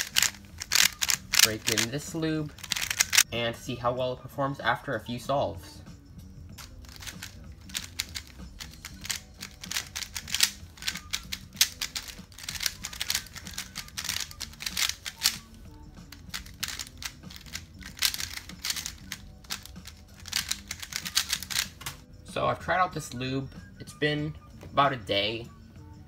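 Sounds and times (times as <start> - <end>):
speedcube clicking as it turns: 0.0 - 2.0, 2.6 - 3.3, 6.6 - 21.8
background music: 0.0 - 26.0.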